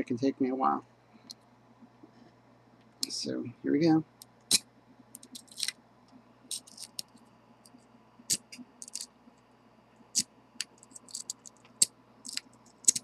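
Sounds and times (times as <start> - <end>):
lock pick scraping and clicking: 5.2 - 5.8, 6.5 - 7.1, 8.3 - 9.1, 10.7 - 11.6.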